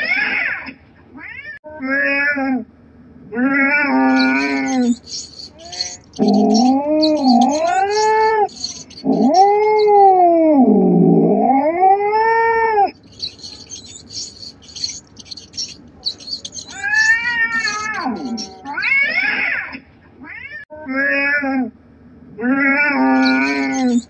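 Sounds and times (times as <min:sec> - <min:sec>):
cat yowling: 0:03.5 - 0:10.7, 0:13.1 - 0:19.4, 0:22.5 - 0:24.0
faint high rapid chirping: 0:03.9 - 0:10.3, 0:12.9 - 0:19.0, 0:23.1 - 0:24.0.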